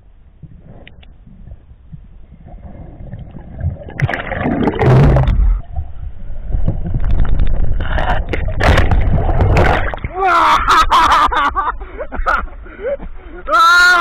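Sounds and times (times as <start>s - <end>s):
bubbles and churning water: 0.3s - 10.8s
muffled underwater rushing: 0.4s - 10.2s.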